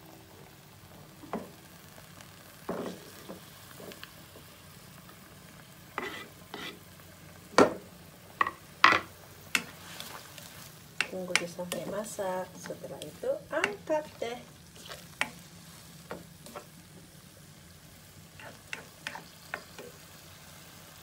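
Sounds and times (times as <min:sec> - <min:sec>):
vegetables sizzling in oil: 0:00.0 - 0:21.0
tongs knocking against pan: 0:13.6 - 0:13.9.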